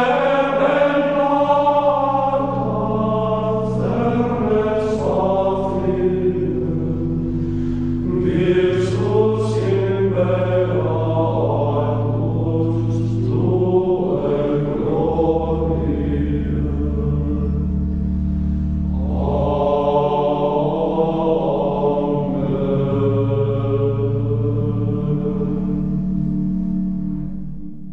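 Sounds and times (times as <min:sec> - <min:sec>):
choir singing sustained tones: 0:00.0 - 0:27.9
held low bass note: 0:00.0 - 0:27.9.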